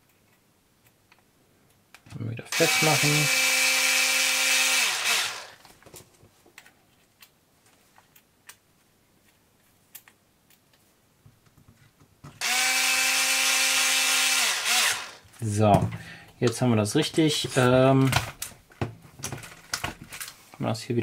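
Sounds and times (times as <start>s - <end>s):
electric screwdriver whine: 2.5s - 5.6s, 12.4s - 15.2s.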